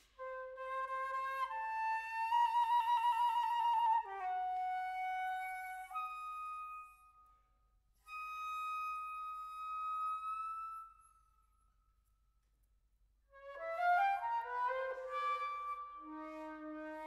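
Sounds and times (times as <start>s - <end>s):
flute playing held notes: 8.1s - 11.2s, 13.4s - 17.0s.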